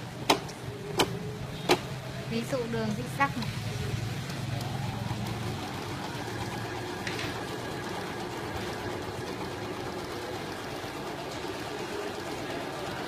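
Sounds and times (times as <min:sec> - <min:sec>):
sewing machine running: 0:00.0 - 0:13.0.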